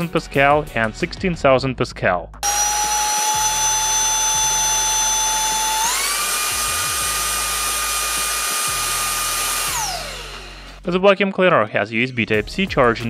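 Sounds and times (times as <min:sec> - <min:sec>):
handheld vacuum cleaner whine: 0:02.4 - 0:10.9.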